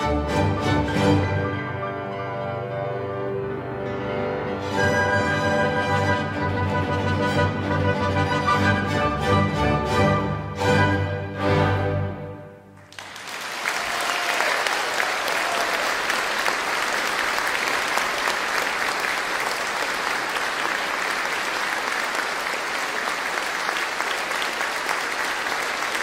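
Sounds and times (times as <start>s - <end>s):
large audience applauding: 12.8s - 26.0s.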